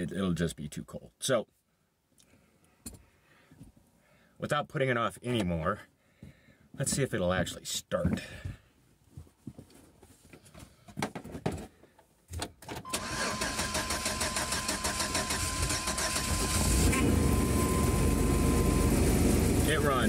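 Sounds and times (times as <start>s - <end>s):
engine cranking and starting: 12.9s - 20.0s
steady high tone: 16.4s - 20.0s.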